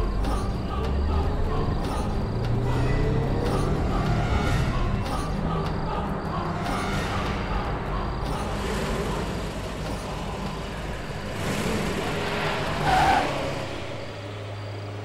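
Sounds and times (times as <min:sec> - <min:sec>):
bus engine rumbling: 0:00.0 - 0:15.0
road noise: 0:00.0 - 0:15.0.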